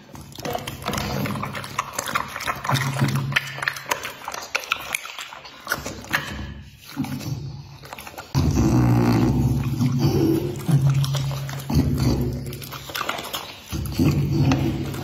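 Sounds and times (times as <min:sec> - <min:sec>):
dog licking lips: 0:00.0 - 0:08.4, 0:09.6 - 0:15.0
dog grumbling moans: 0:08.3 - 0:12.8.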